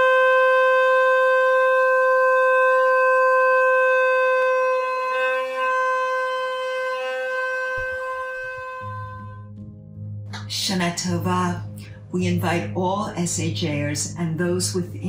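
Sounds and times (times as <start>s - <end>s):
faint short shofar notes: 0.0s - 9.6s
shofar long held note: 0.0s - 9.8s.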